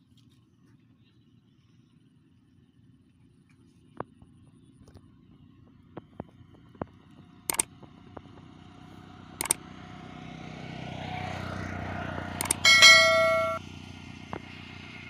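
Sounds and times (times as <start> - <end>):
bright bell ding: 12.4 - 13.6
mouse button clicks: 12.4 - 13.6.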